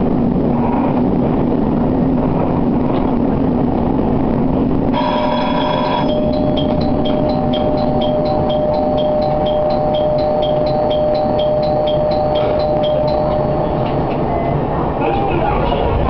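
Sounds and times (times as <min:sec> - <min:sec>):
diesel engine rumble: 0:00.0 - 0:16.0
high-pitched two-tone chirping: 0:05.0 - 0:14.6.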